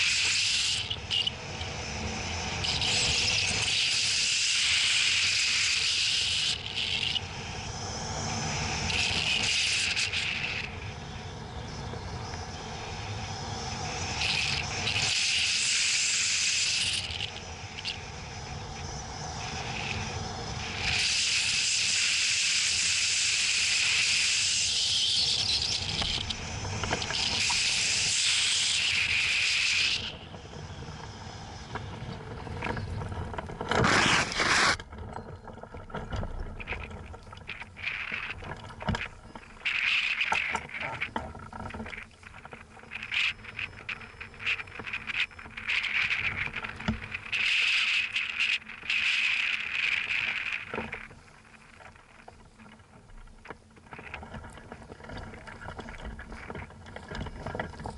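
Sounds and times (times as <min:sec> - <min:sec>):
glider scraping on soil: 0:31.8 - 0:34.9.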